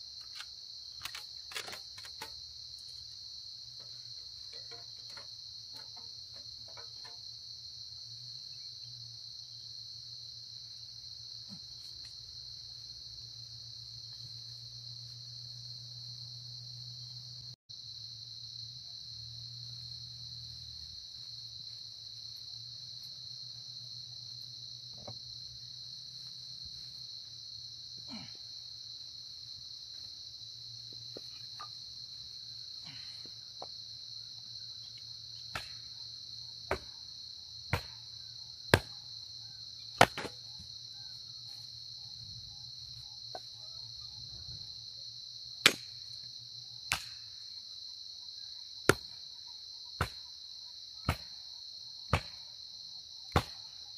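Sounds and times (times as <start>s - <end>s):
high-pitched insect chorus: 0.0s - 53.9s
wooden knocks of splitting firewood: 0.2s - 3.0s, 3.7s - 7.3s, 35.5s - 35.8s, 36.7s - 37.0s, 37.7s - 38.0s, 38.7s - 39.0s, 40.0s - 40.7s, 53.3s - 53.6s.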